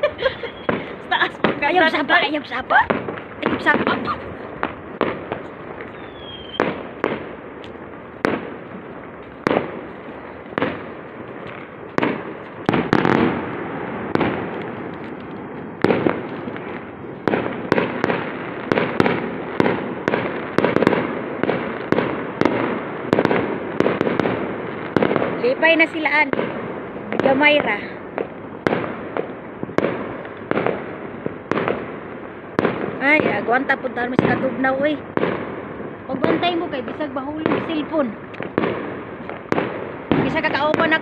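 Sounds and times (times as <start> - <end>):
falling firework whistle: 0.0 - 1.0, 5.8 - 6.9
firecracker crackle: 0.0 - 41.0
firework bangs: 0.0 - 41.0.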